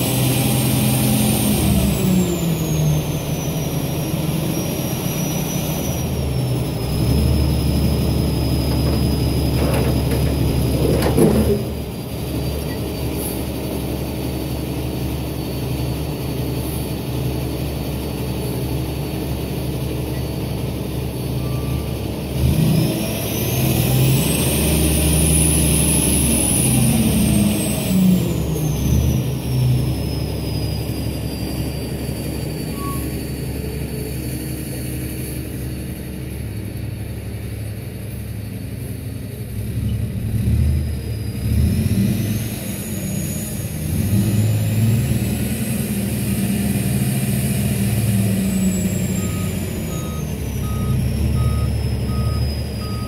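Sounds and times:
truck engine running: 0:00.0 - 0:53.0
hydraulic whine: 0:00.4 - 0:13.5.

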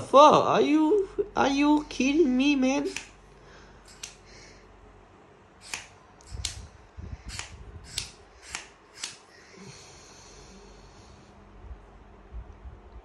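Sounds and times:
faint low rumble: 0:00.0 - 0:08.4, 0:09.3 - 0:13.0
flashlight clicks: 0:02.9 - 0:03.2, 0:03.9 - 0:04.2, 0:05.6 - 0:06.7, 0:07.3 - 0:09.3.

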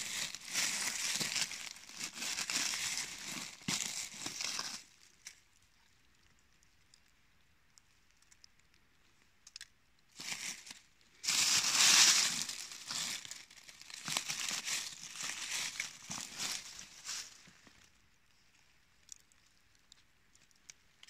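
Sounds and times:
dry leaves crackling and rustling: 0:00.0 - 0:05.0, 0:10.2 - 0:17.8.

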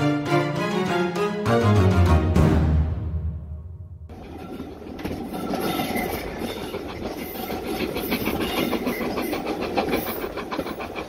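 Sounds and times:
train carriage rumbling: 0:04.1 - 0:11.0
wheels clattering on rails: 0:04.1 - 0:11.0.

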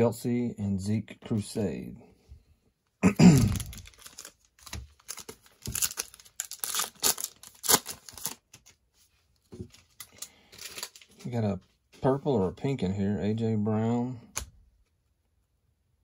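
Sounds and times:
plastic wrapper tearing and crinkling: 0:03.4 - 0:08.8, 0:09.7 - 0:11.3.

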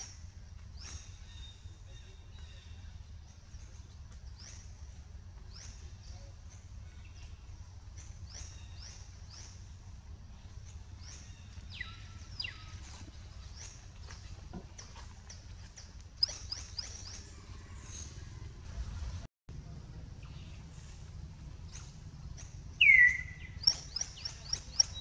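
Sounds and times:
low steady rumble: 0:00.0 - 0:25.0
high animal chirps: 0:22.8 - 0:25.0.

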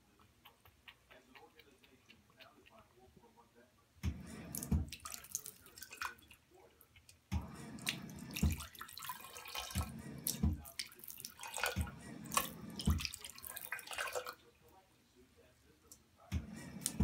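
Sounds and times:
faucet water splashing into sink: 0:04.3 - 0:06.2, 0:07.3 - 0:14.4.

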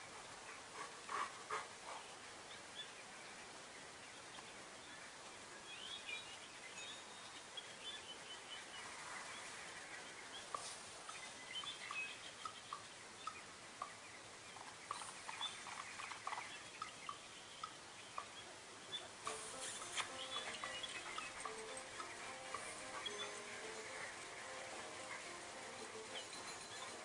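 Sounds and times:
faint bird chirps: 0:01.8 - 0:27.0
steady hiss: 0:07.6 - 0:27.0.

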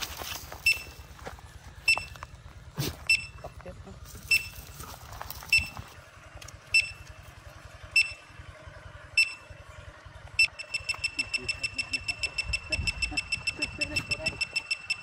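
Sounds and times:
metal detector beeping: 0:00.0 - 0:01.1, 0:01.8 - 0:02.4, 0:03.0 - 0:03.6, 0:04.2 - 0:04.8, 0:05.4 - 0:06.0, 0:06.6 - 0:07.2, 0:07.9 - 0:08.3, 0:09.2 - 0:09.6, 0:10.4 - 0:15.0.

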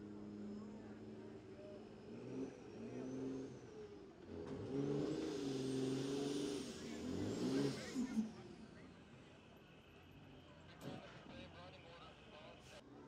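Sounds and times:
truck engine revving hard: 0:04.3 - 0:08.1.

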